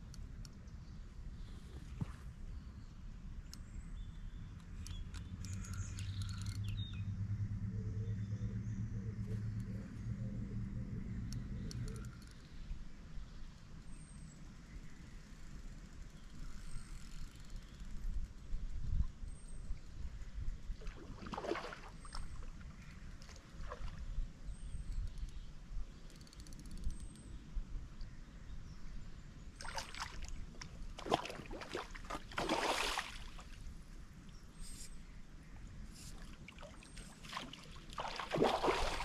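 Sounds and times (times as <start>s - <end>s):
wind rumble on microphone: 15.5s - 29.4s
water sloshing and splashing: 20.8s - 24.1s, 29.6s - 33.7s, 36.1s - 39.0s.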